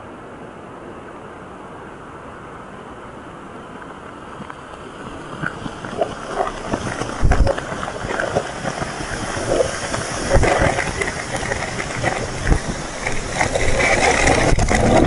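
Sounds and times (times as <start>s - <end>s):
rushing hiss: 4.8s - 15.0s
debris pattering: 5.4s - 15.0s.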